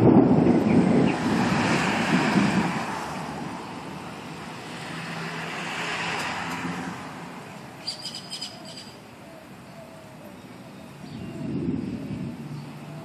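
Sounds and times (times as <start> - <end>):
rushing noise with low hum: 0.0 - 7.9, 10.8 - 13.0.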